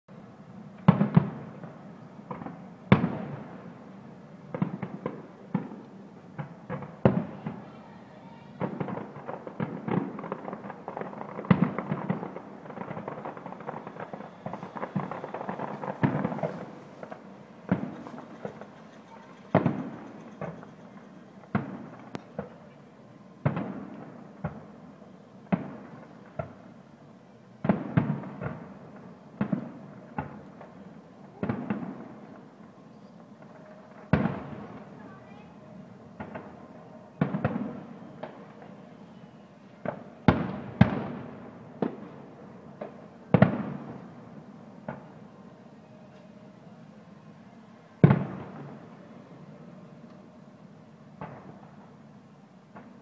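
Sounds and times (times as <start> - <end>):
firework crackle: 0.1 - 53.0
firework shells bursting: 8.6 - 22.7.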